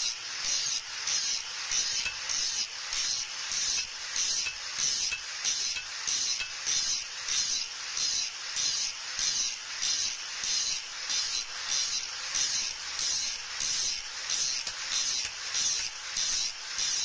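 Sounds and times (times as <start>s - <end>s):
wire wheel grinder rasping on steel: 0.0s - 17.0s.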